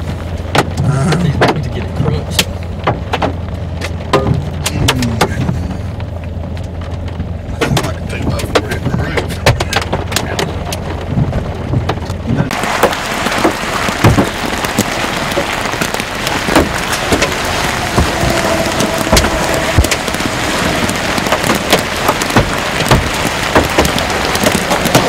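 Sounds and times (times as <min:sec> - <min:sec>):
heavy rain and hail: 0:00.0 - 0:25.0
low hum: 0:11.0 - 0:25.0.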